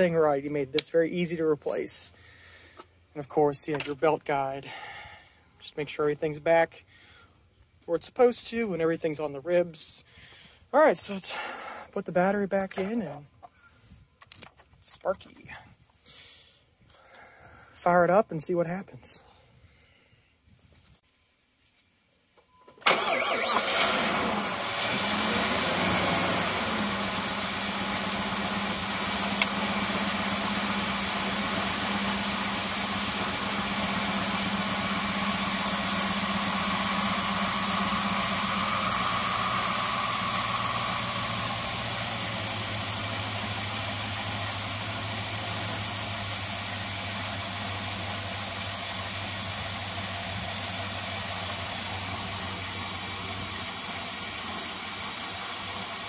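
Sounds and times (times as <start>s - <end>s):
car engine starting and idling: 22.8s - 56.0s.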